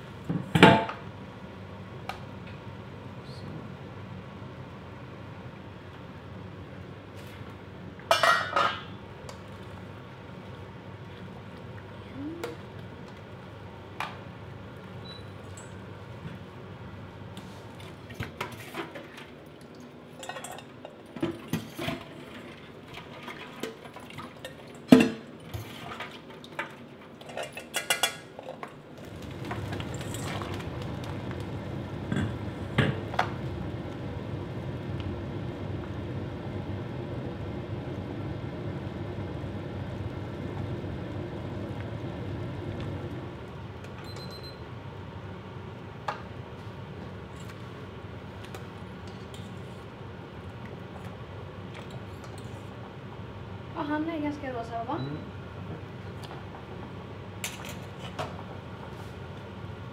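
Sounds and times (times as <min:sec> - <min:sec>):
water boiling in a pot: 0:03.8 - 0:54.7.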